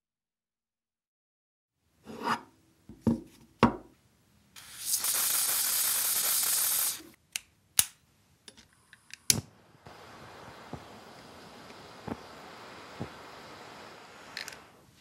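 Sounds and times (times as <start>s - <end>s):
aerosol can hissing: 4.6s - 7.2s, 9.8s - 15.0s.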